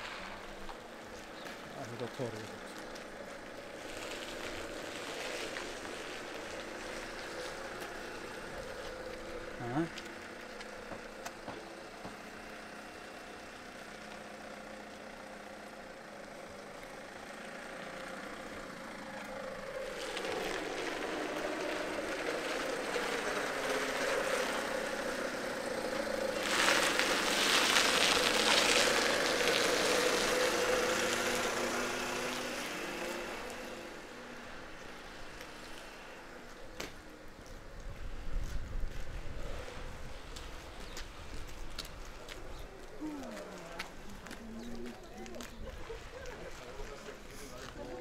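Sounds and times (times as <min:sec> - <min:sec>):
vehicle engine passing by: 0:16.3 - 0:48.0.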